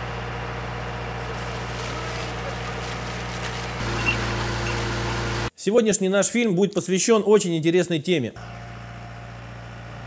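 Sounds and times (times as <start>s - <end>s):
engine running steadily: 0.0s - 5.5s, 8.4s - 10.0s.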